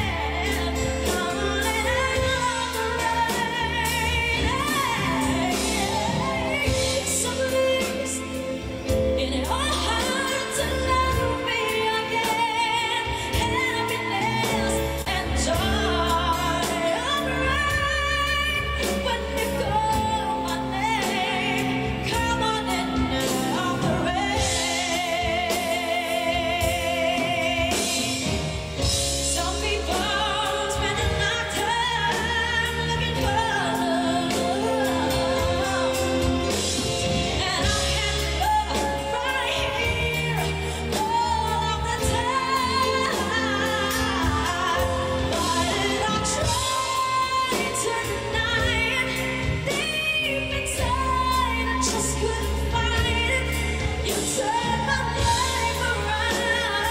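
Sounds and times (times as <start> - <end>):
band playing: 0.0 - 56.9
woman singing a ballad: 0.0 - 56.9.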